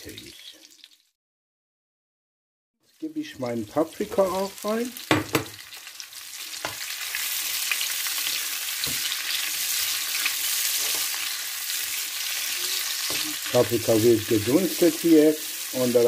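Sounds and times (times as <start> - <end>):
vegetables sizzling in oil: 2.8 - 16.0
spatula stirring in pan: 6.5 - 15.8.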